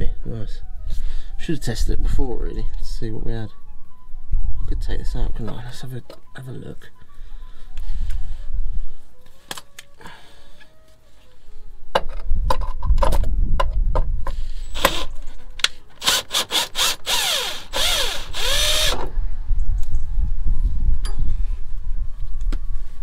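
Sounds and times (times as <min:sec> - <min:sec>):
cordless drill motor: 0:14.8 - 0:15.1, 0:16.0 - 0:19.1
drill clicks: 0:14.8 - 0:19.1.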